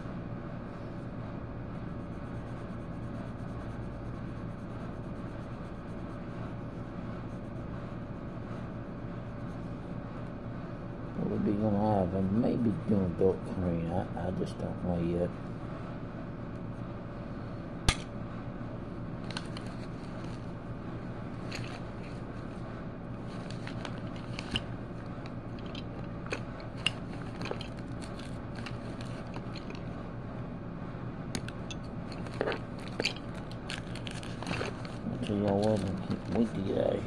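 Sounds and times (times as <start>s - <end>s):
low background hum: 0.0s - 37.0s.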